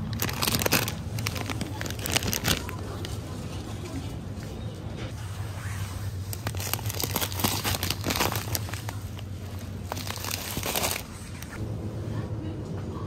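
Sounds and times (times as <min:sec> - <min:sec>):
plastic bag crinkling: 0:00.0 - 0:03.9, 0:06.2 - 0:11.6.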